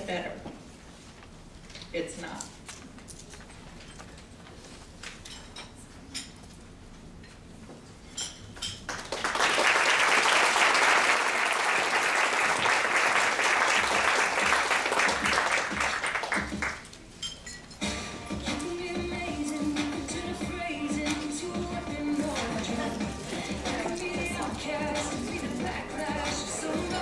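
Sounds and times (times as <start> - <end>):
audience applauding: 8.9 - 16.8.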